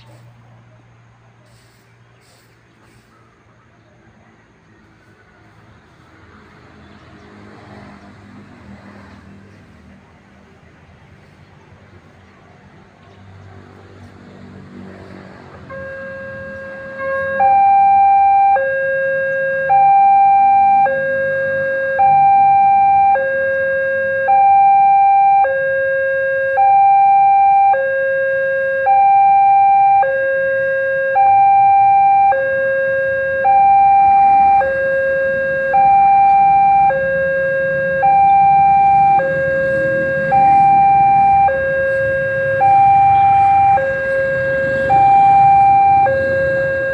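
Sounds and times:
two-tone crossing alarm: 0:14.9 - 0:46.9.

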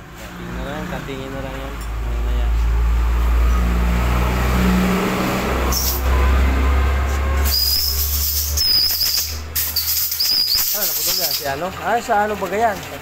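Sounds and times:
hiss with high whistling notes: 0:07.4 - 0:11.4.

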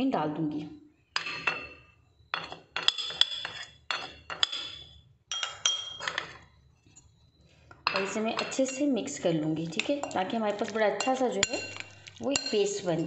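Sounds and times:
spoon clinking on glass and china: 0:01.2 - 0:06.4, 0:07.9 - 0:08.9, 0:09.7 - 0:13.0.

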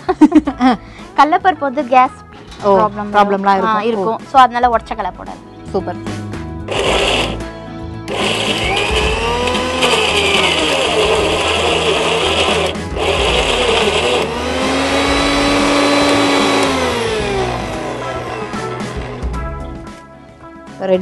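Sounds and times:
mixer grinder motor whining: 0:06.7 - 0:07.5, 0:08.1 - 0:19.3.

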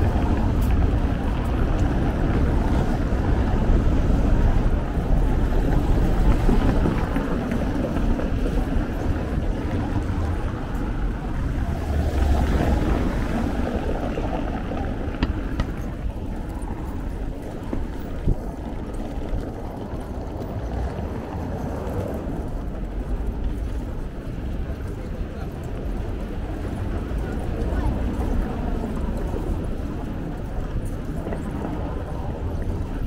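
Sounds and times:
bicycle rolling over cobbles: 0:00.0 - 0:33.0
wind buffeting microphone: 0:00.0 - 0:33.0.

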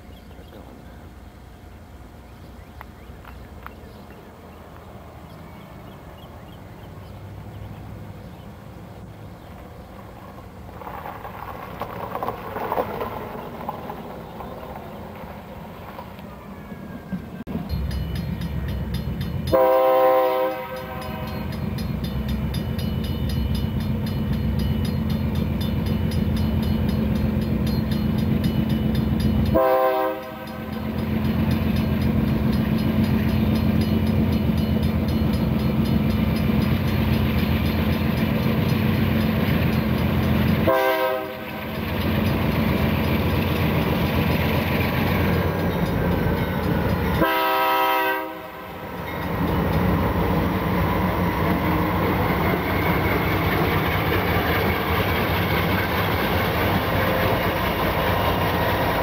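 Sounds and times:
locomotive engines rumbling: 0:00.0 - 0:59.0
train air horn blasts: 0:19.5 - 0:21.5, 0:29.5 - 0:30.7, 0:40.6 - 0:41.5, 0:47.2 - 0:48.8.

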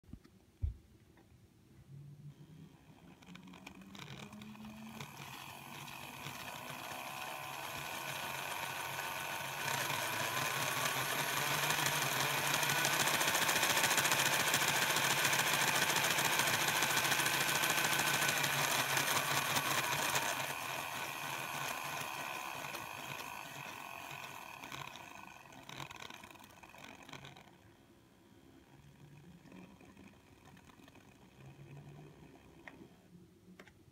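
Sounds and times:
model train motor whine: 0:02.3 - 0:27.7, 0:28.4 - 0:32.9.

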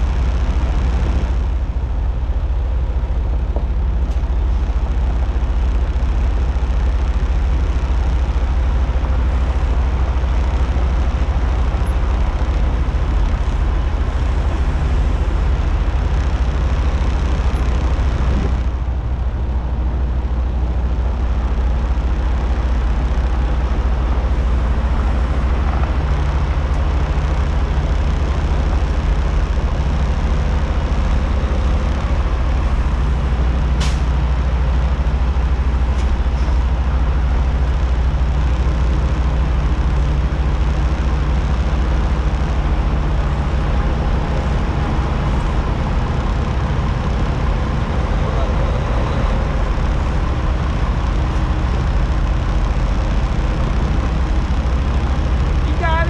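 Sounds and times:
diesel truck engine idling: 0:00.0 - 0:56.0.

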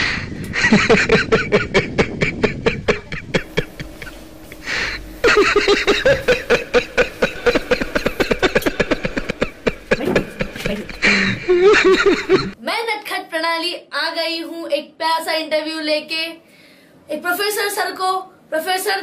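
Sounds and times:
rapid cackling laughter: 0:00.5 - 0:12.6.

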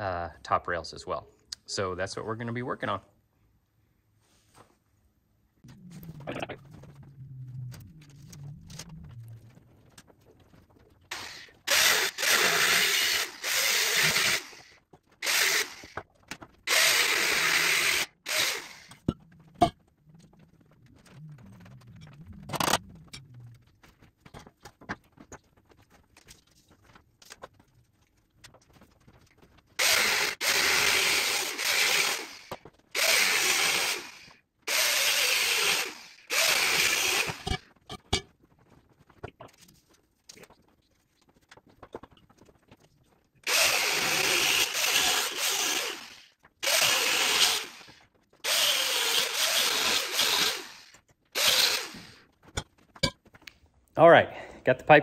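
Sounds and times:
angle grinder cutting metal pipe: 0:11.1 - 0:16.0, 0:16.7 - 0:19.0, 0:29.8 - 0:37.6, 0:43.5 - 0:52.2.

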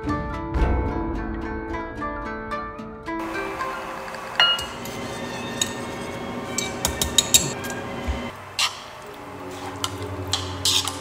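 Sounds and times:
dishes and utensils clinking: 0:04.2 - 0:11.0.

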